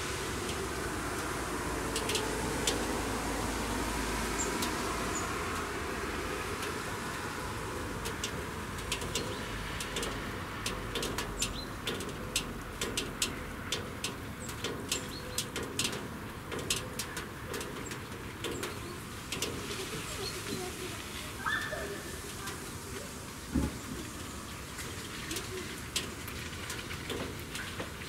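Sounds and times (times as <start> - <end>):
birds chirping: 16.6 - 19.2.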